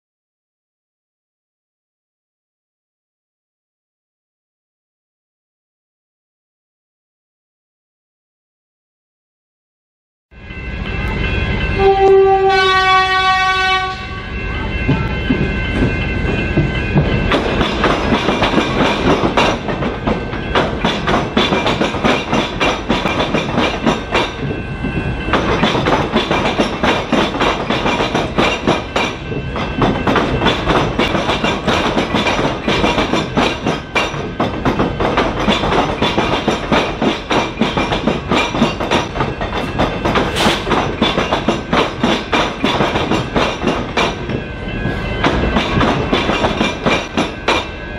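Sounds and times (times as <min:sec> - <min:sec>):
train horn: 0:11.8 - 0:14.4
train wheels clattering: 0:14.6 - 0:47.9.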